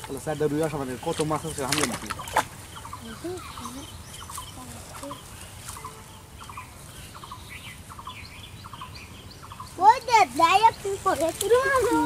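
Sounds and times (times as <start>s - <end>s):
birds calling: 0.0s - 12.0s.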